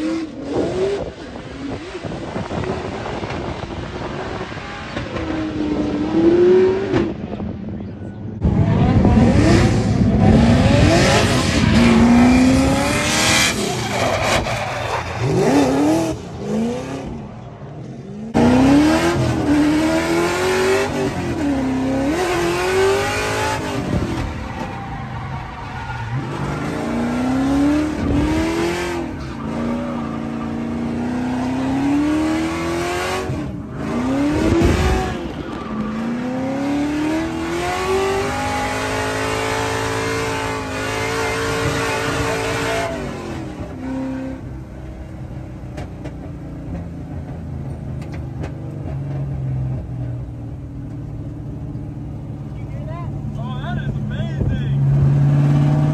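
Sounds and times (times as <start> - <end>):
car engines revving: 0.0 - 55.9
tyre squeal: 13.4 - 15.7.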